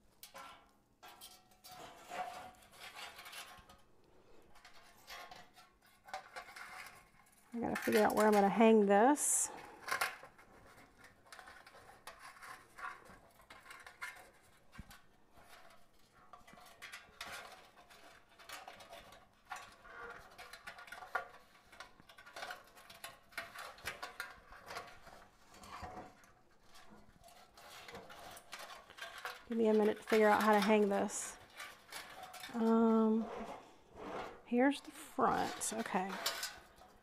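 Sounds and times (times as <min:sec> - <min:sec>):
faint rustling: 0:24.0 - 0:37.0.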